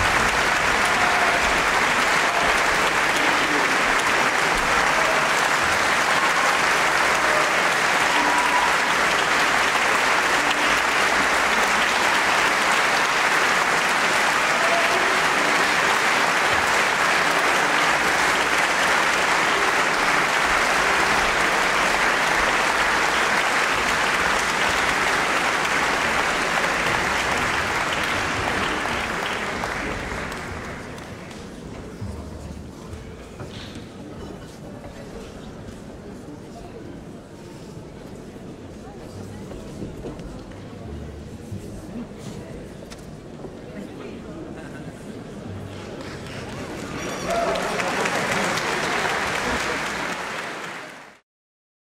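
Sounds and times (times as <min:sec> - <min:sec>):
audience applauding: 0:00.0 - 0:31.5, 0:45.4 - 0:51.2.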